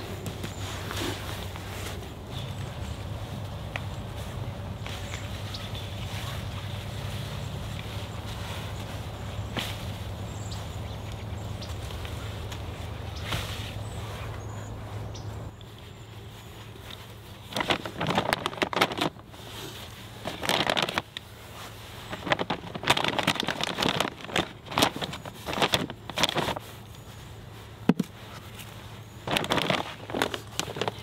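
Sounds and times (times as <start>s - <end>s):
plastic bag crinkling: 17.4s - 21.3s, 22.0s - 26.7s, 29.2s - 31.0s.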